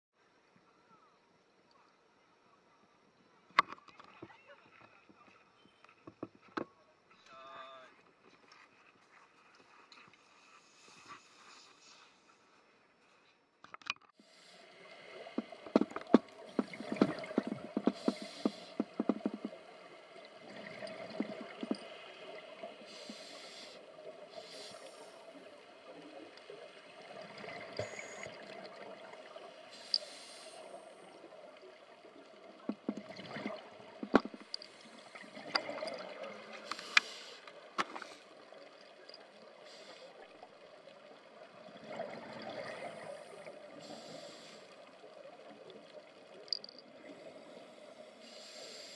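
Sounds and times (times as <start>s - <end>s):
underwater air bubbles gurgling: 14.3s - 48.9s.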